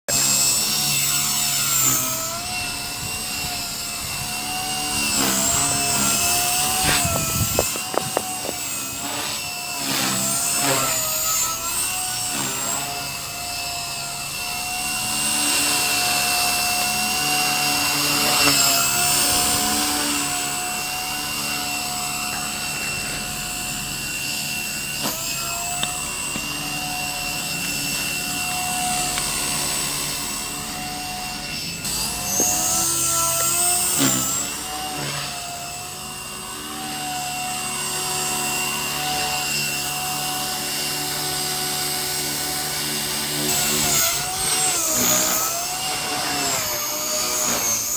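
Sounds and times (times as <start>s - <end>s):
rc helicopter whine: 0.1s - 47.9s.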